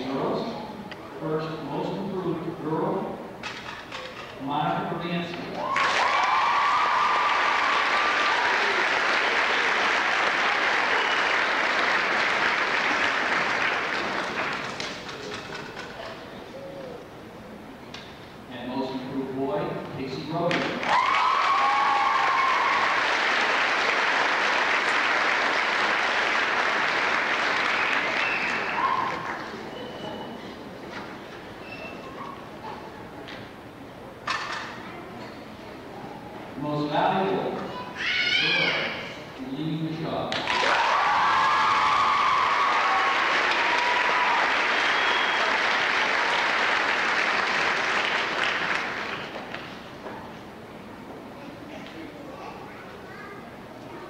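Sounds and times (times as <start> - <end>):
audience applauding: 5.7 - 15.1, 20.8 - 29.6, 40.4 - 49.6.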